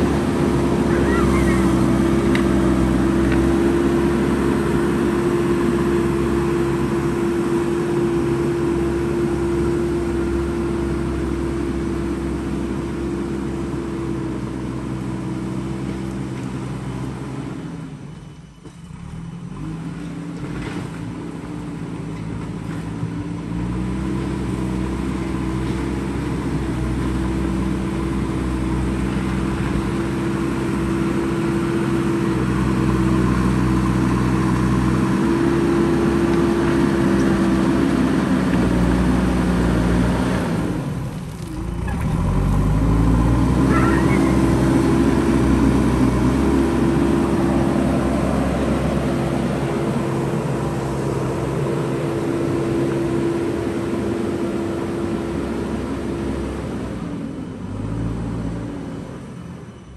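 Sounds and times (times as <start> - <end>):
backhoe loader diesel engine: 0.0 - 59.9.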